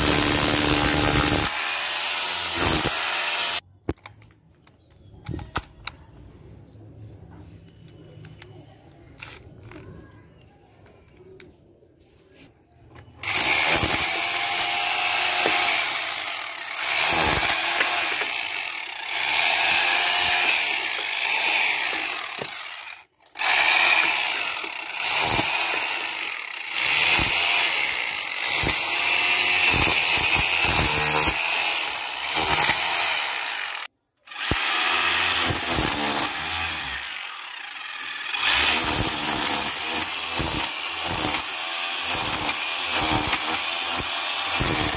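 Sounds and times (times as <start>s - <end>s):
rotary hammer chiselling brick: 0.0s - 4.0s, 13.2s - 33.8s, 34.4s - 37.0s, 38.0s - 44.9s.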